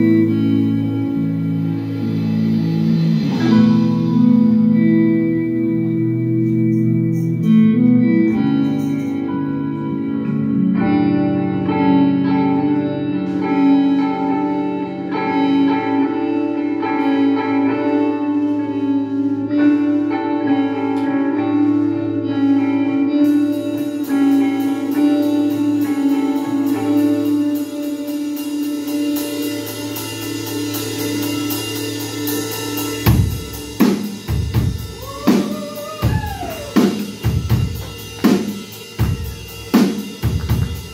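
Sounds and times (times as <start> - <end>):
bass: 0.0 - 40.9
electric guitars ringing: 0.0 - 40.9
cymbals pulsing: 23.2 - 40.9.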